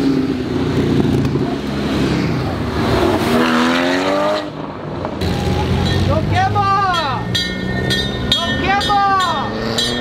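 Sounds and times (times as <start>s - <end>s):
car and motorcycle engines: 0.0s - 10.0s
engine revving up: 1.0s - 4.6s.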